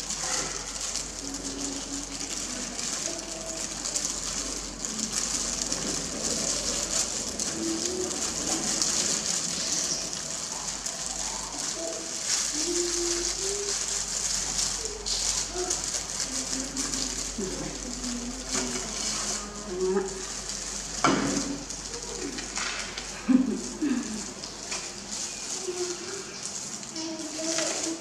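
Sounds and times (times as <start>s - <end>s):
low cooing calls: 0.0s - 20.3s
plastic gloves crinkling: 0.0s - 28.0s.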